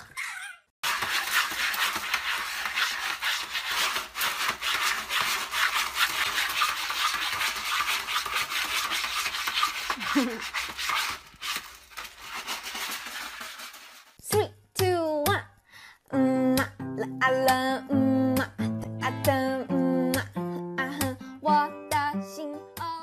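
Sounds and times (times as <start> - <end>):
cat scratching litter pellets: 0.8 - 14.2.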